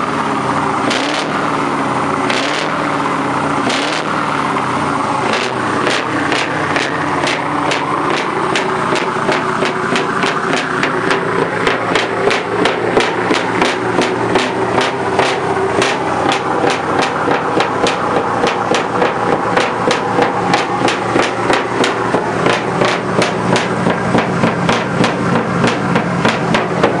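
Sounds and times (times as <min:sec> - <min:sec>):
truck engine idling: 0:00.0 - 0:27.0
sharp regular knocking: 0:05.2 - 0:27.0.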